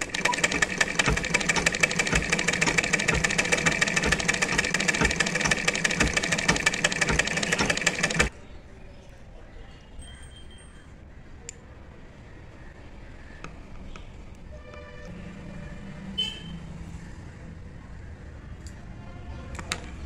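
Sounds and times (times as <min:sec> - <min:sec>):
sewing machine clattering: 0:00.0 - 0:08.3.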